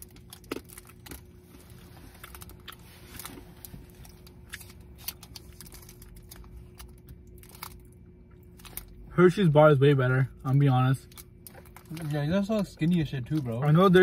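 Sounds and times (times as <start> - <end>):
foil wrapper crinkling: 0.0 - 9.0
low steady hum: 0.0 - 14.0.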